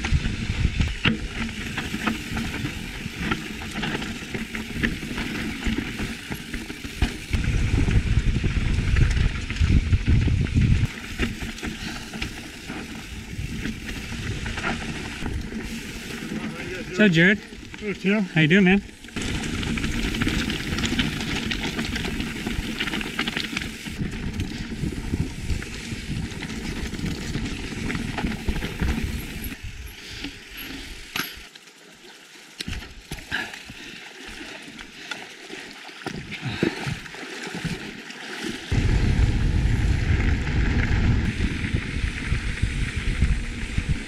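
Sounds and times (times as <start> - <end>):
wind rumble on microphone: 0.0 - 6.1, 7.0 - 16.9, 19.2 - 30.0, 38.7 - 44.0
bike rattle: 0.0 - 31.5
bike riding on gravel: 0.0 - 44.0
bike tyres on dirt trail: 0.0 - 44.0
flowing creek water: 30.3 - 38.8.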